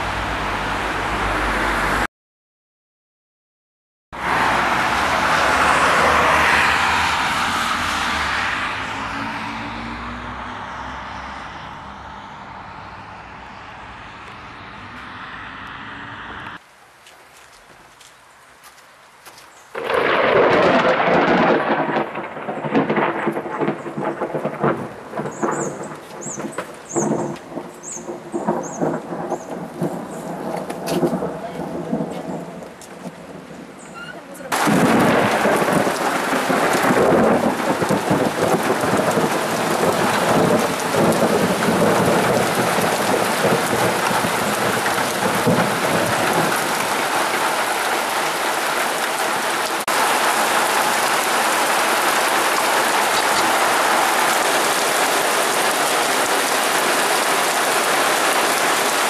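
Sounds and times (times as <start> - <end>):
rain: 0.0 - 2.1, 4.2 - 59.0
heavy downpour hissing: 16.6 - 59.0
thunder rumbling: 19.7 - 33.8, 34.5 - 56.2.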